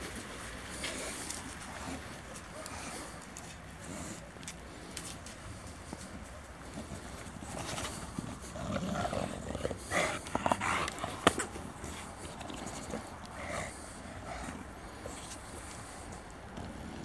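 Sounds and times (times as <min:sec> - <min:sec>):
dogs playing and vocalizing: 0:00.0 - 0:17.0.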